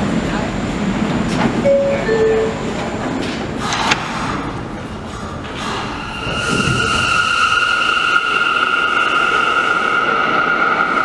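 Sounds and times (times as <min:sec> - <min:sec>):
train doors sliding shut: 0:01.1 - 0:07.3
two-note descending door chime: 0:01.7 - 0:02.6.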